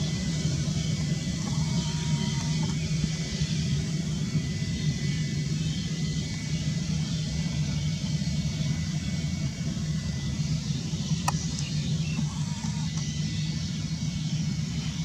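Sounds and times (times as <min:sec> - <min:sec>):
jet engines rumbling at low thrust: 0:00.0 - 0:15.0.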